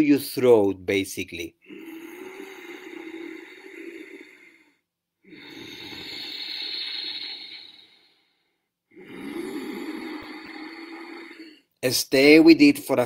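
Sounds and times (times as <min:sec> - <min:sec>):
man breathing with soft hiss: 0:01.6 - 0:11.8.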